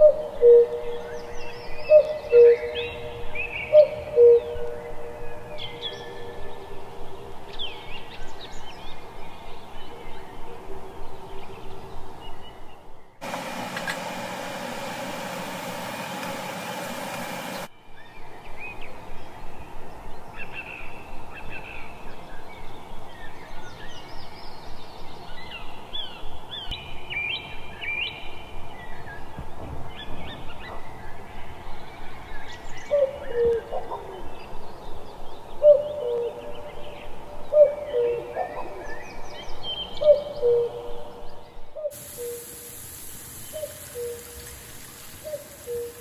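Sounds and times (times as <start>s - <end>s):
steady even noise: 13.2s - 17.7s
small birds chirping and whistling: 43.4s - 46.0s.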